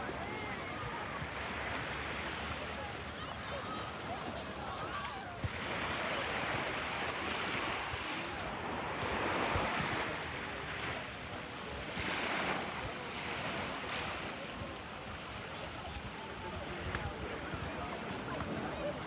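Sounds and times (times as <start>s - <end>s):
small waves washing onto sand: 0.0s - 19.0s.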